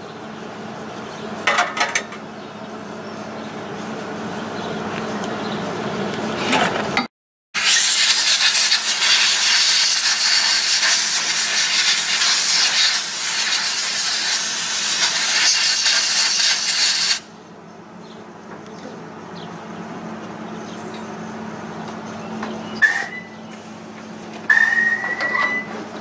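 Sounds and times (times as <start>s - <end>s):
compressed air blow gun hissing: 7.6s - 17.2s.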